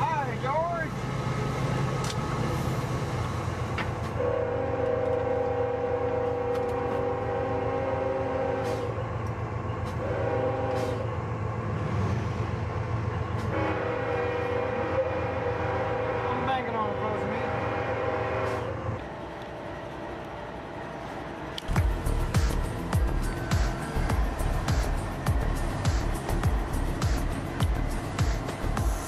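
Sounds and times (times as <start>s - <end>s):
locomotive rumbling on rails: 0.0s - 29.0s
locomotive air horn: 4.1s - 9.0s, 9.8s - 11.1s, 13.4s - 18.8s.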